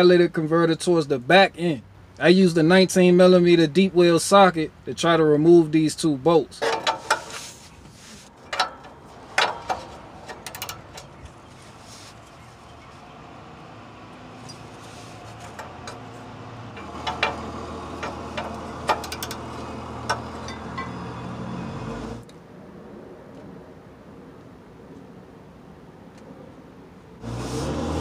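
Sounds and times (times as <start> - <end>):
wrench clinking on bolts: 6.6 - 7.4, 8.4 - 11.4, 16.7 - 21.2.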